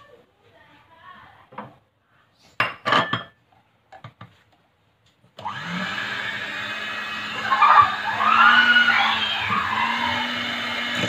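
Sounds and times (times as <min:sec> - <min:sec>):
electric hand mixer humming: 0:05.4 - 0:11.0.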